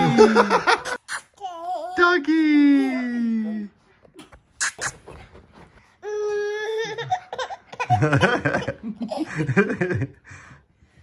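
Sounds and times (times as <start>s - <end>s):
people laughing: 0.0s - 1.0s, 7.9s - 10.2s
baby giggling: 6.4s - 9.4s.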